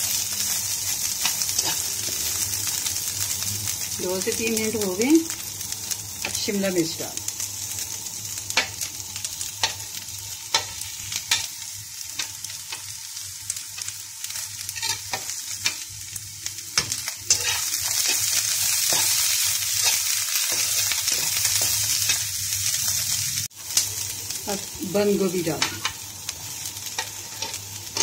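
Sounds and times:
vegetables sizzling in oil: 0.0 - 28.0.

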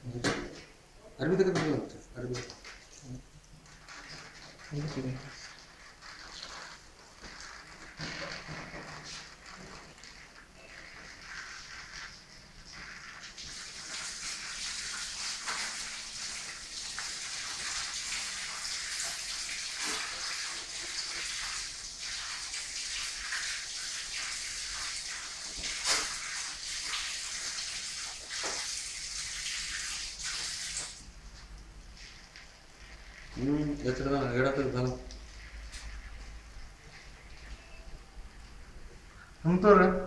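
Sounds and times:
liquid squirting and splashing: 3.6 - 31.2, 31.8 - 37.6.

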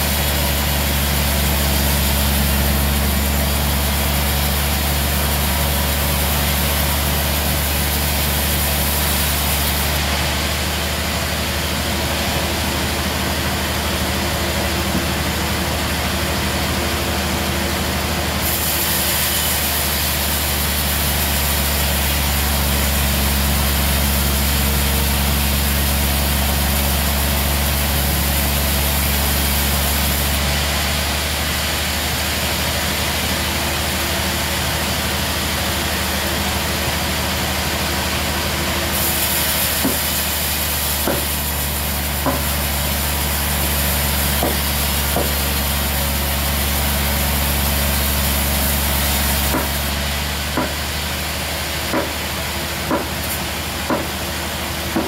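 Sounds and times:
band saw cutting log: 0.0 - 55.0.

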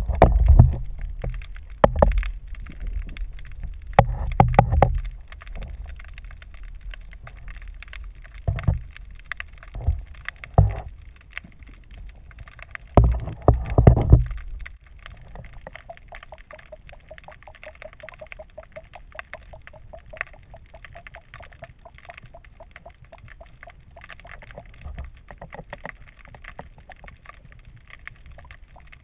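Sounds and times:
muffled underwater thumps: 15.6 - 24.7.

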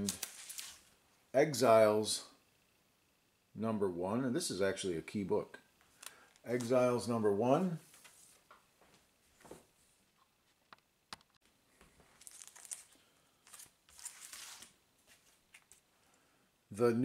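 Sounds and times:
plastic bags rustling and crinkling: 0.0 - 1.0, 12.0 - 15.9.

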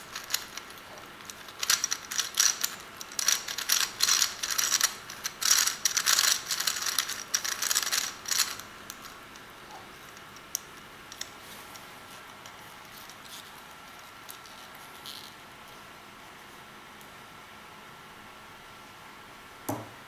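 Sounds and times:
plastic gear puzzle clicking: 0.0 - 9.5.

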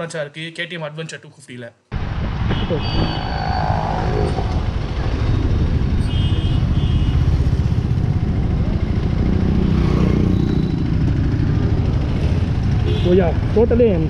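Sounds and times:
motorcycle engine low rumble: 3.2 - 14.0.

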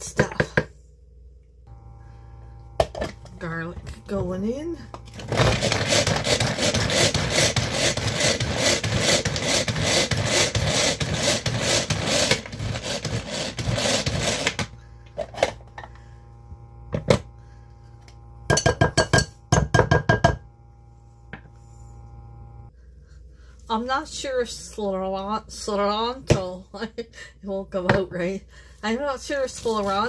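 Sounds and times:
food chopper whirring: 1.7 - 4.3, 4.9 - 20.5.

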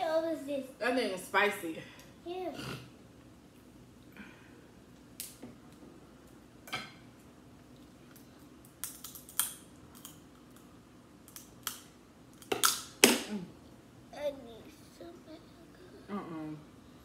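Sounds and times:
crab shells cracking: 8.6 - 13.1.

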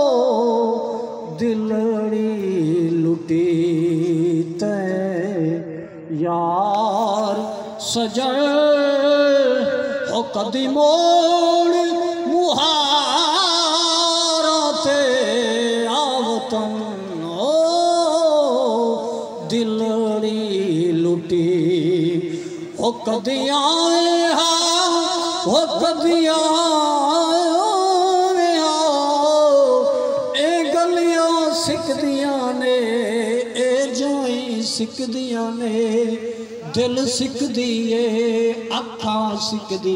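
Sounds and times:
man singing into a microphone: 0.0 - 39.9.

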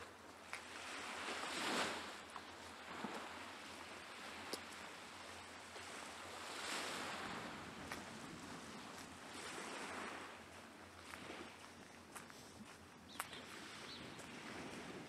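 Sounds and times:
small waves washing onto shore: 0.0 - 15.0
wind on microphone: 5.8 - 15.0.

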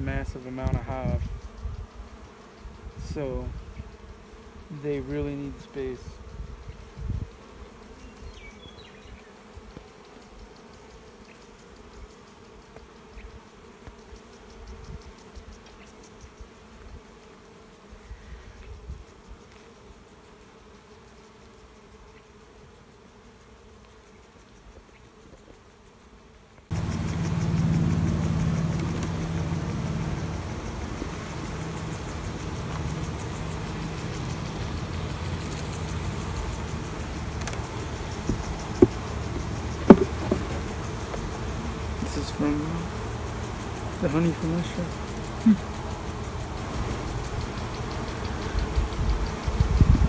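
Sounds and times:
bees buzzing: 0.0 - 50.0
steady low hum: 26.7 - 50.0.

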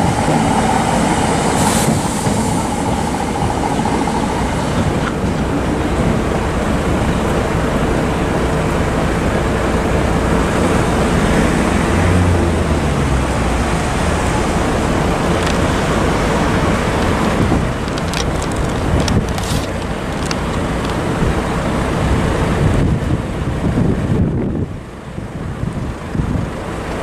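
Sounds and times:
road traffic: 0.0 - 27.0
wind buffeting microphone: 12.5 - 26.8
sharp clicks: 15.3 - 15.7, 17.8 - 21.0.

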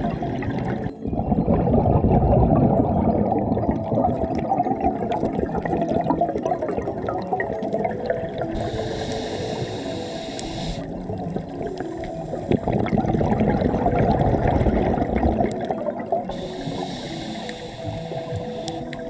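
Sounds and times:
underwater bubbles gurgling: 0.0 - 19.0
high hiss: 8.6 - 10.9, 16.3 - 19.0.

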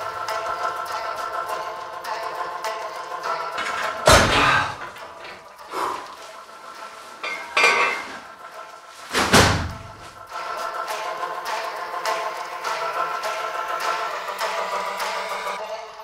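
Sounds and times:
weight stack metal clanks: 3.2 - 5.6, 7.2 - 8.3.

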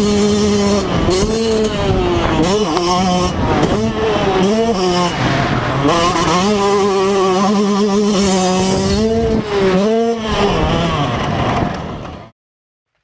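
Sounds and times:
two-stroke engine at high revs: 0.0 - 12.3.

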